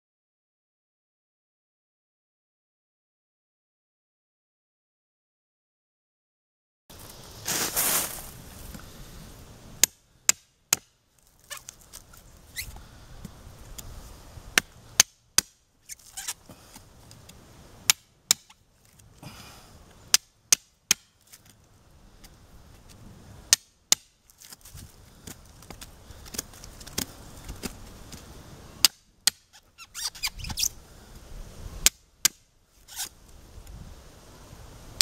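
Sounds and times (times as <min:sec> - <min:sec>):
dry leaves rustling: 0:06.9 - 0:09.7, 0:11.1 - 0:14.9, 0:24.2 - 0:28.8.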